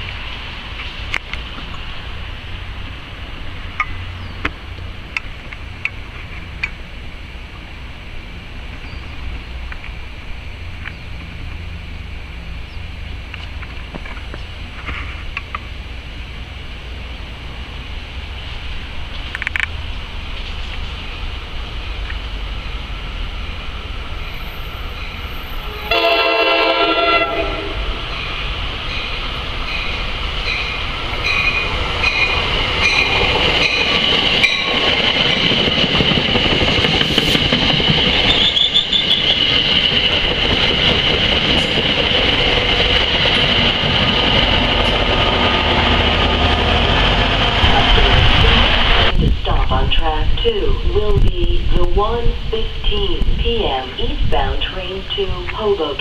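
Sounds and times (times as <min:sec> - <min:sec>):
train wheels clicking over rail joints: 0:19.0 - 0:21.2, 0:28.0 - 0:48.9
train horn blast: 0:25.4 - 0:28.0
high brake squeal: 0:38.2 - 0:39.5
low rumble: 0:42.8 - 0:54.5.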